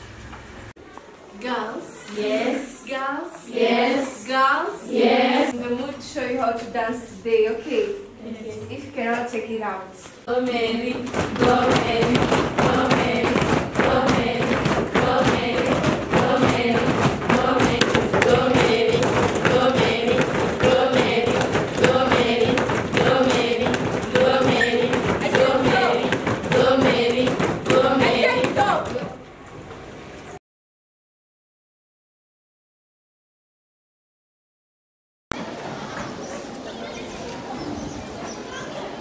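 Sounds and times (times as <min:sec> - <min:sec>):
group of voices singing: 0:02.0 - 0:05.6, 0:10.2 - 0:29.1.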